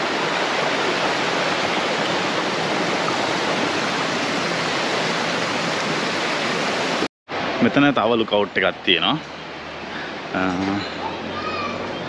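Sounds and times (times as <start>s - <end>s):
creek running over rocks: 0.0s - 8.3s.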